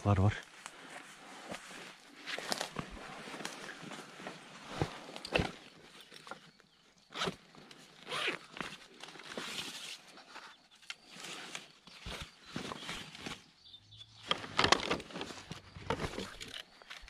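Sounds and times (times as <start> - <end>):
backpack zipper being pulled: 8.0 - 8.5.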